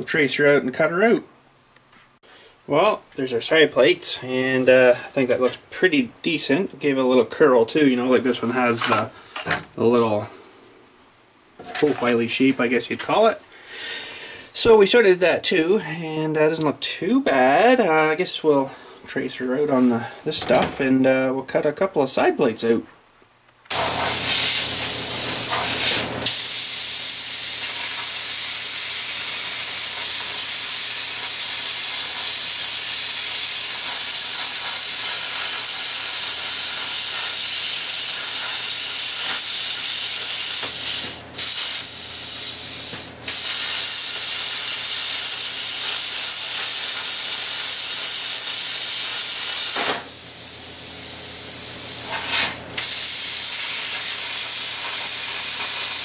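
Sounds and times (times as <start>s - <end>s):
plasma cutter hissing: 23.7s - 56.0s.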